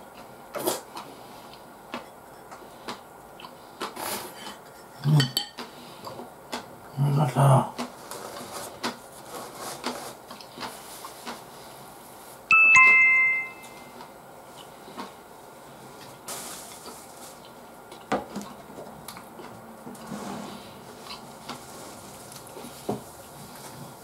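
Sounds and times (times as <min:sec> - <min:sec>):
two-note electronic chime: 0:12.5 - 0:14.0.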